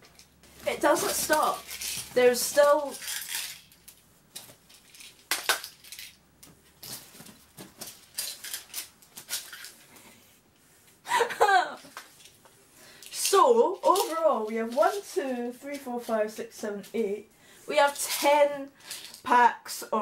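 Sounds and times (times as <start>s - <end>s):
plastic tubs of pins rattling: 0.1s - 4.0s, 4.6s - 6.2s, 6.8s - 9.8s
person laughing: 11.1s - 12.0s.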